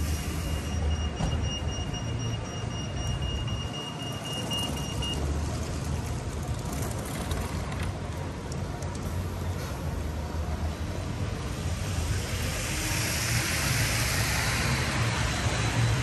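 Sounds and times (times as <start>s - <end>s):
tyre hiss on wet road: 0.0s - 0.8s, 9.0s - 10.2s, 11.4s - 16.0s
traffic rumble: 0.0s - 16.0s.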